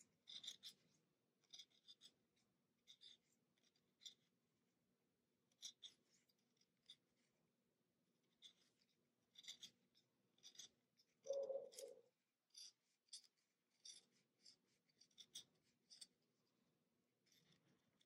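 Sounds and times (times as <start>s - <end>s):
knife blade scraping pencil wood: 0.0s - 4.3s, 5.5s - 7.2s, 8.3s - 16.2s.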